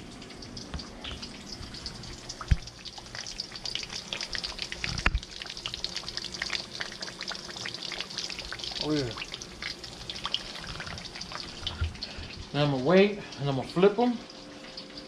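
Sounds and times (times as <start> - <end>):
fish sizzling in a pan: 0.0 - 15.0.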